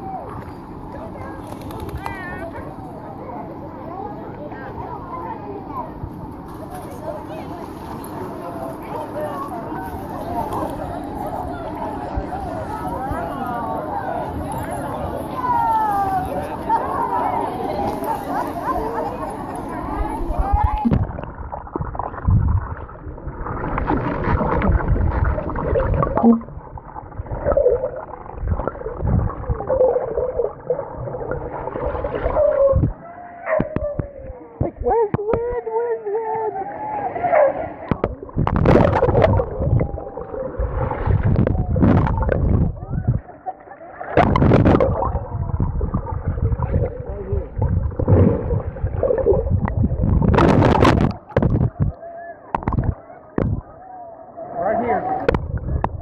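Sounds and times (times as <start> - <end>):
muffled underwater gurgling: 8.8 - 35.6, 37.8 - 53.8, 55.0 - 56.0
water splash: 20.6 - 33.0, 37.8 - 43.2, 44.0 - 51.9.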